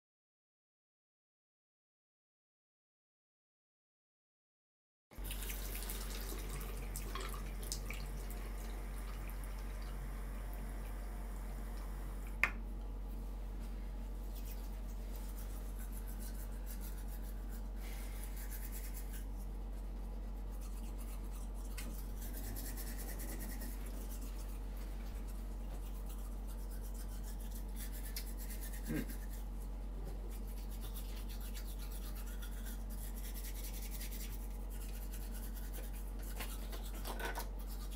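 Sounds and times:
low hum: 5.4 - 31.5
toothbrush scrubbing teeth: 14.2 - 37.9.

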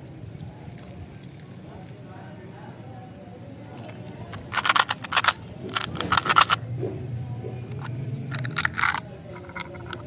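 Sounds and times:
candies rattling in plastic box: 3.8 - 6.6, 7.8 - 10.0.

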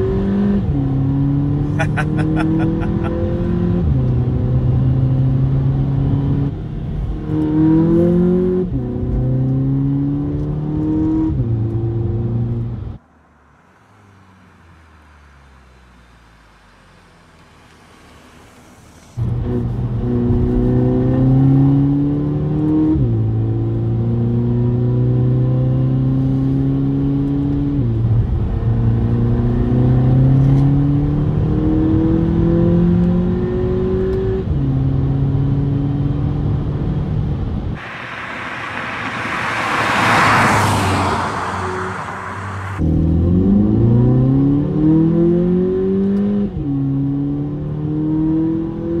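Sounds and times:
car engine accelerating: 0.0 - 49.0.

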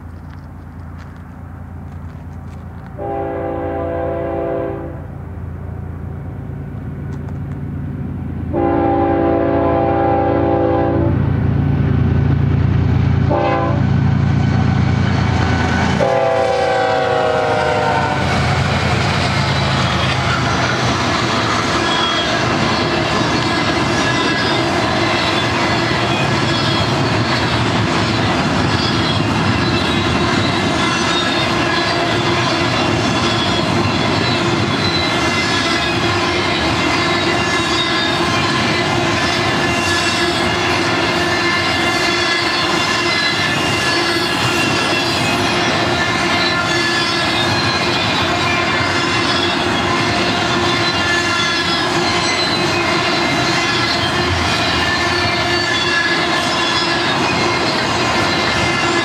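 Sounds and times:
rail cars clattering past: 0.0 - 59.0
locomotive air horn blasts: 3.0 - 5.1, 8.5 - 11.3, 13.3 - 14.0, 16.0 - 18.3.

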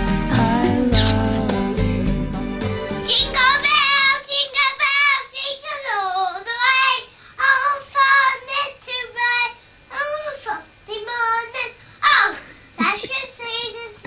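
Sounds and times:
girl singing: 3.0 - 14.0.

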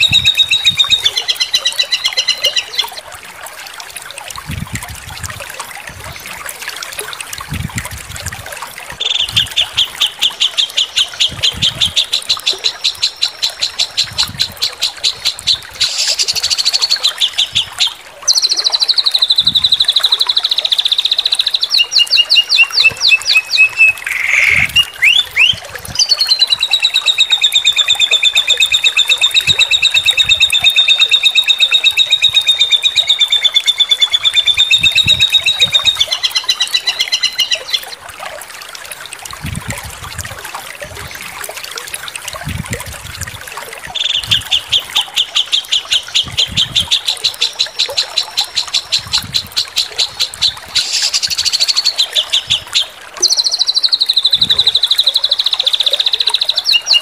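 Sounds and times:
songbird fast trills: 15.8 - 17.6, 18.3 - 37.8, 50.8 - 52.6.

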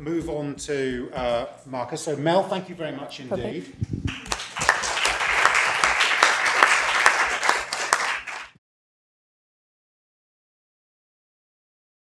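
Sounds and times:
audience applauding: 4.1 - 8.6.

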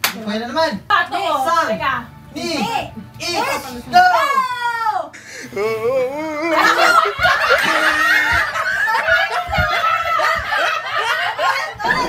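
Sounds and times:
people laughing: 5.2 - 12.0.

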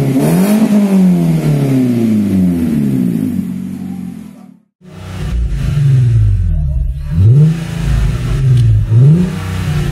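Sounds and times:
car engine revs dropping: 4.8 - 9.9.

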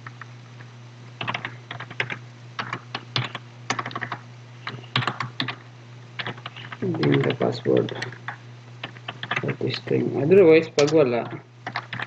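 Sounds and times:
keyboard typing: 1.2 - 5.6, 6.2 - 9.6, 10.8 - 12.0.

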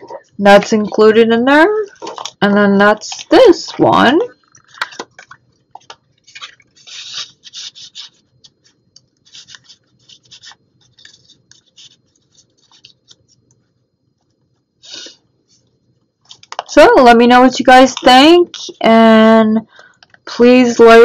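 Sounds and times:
paper cards rustling: 4.6 - 13.6.

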